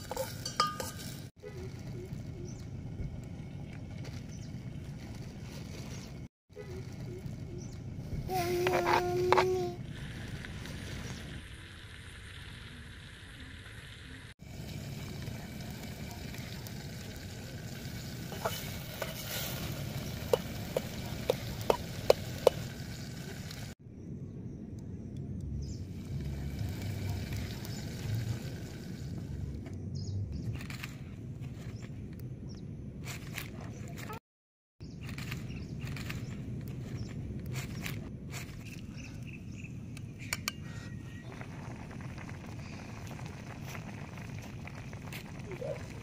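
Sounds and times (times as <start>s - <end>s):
spoon clinking against a pot: 0.0s - 1.2s
vegetables sizzling in a pot: 8.3s - 23.8s, 26.0s - 29.5s.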